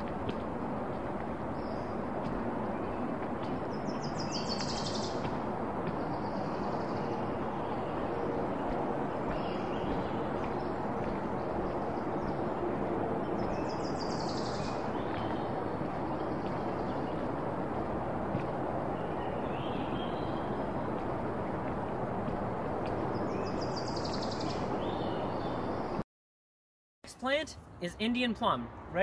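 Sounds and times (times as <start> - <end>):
steady rushing noise: 0.0 - 26.0
songbird singing: 1.0 - 17.4, 18.8 - 21.7, 22.7 - 26.0.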